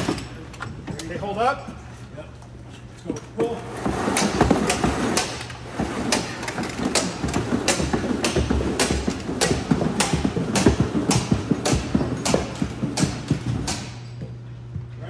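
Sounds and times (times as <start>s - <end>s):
boots on steel stairs: 3.9s - 14.9s
sharp metallic knocks: 6.1s - 14.2s.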